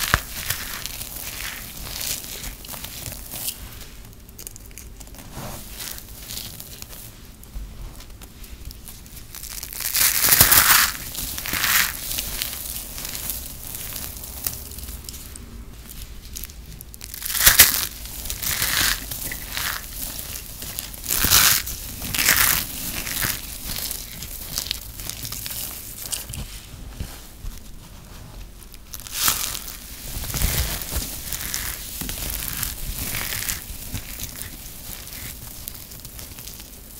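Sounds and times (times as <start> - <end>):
soap balls crunching: 0.0 - 7.0, 8.0 - 26.5, 28.7 - 36.9
soap crumbs rustling: 0.0 - 36.9.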